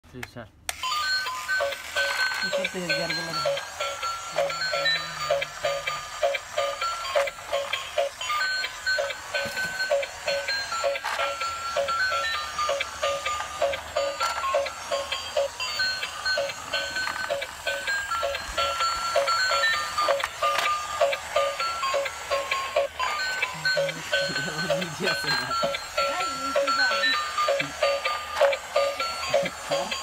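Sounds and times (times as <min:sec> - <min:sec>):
toy car beeping electronic tune: 0:00.7 - 0:30.0.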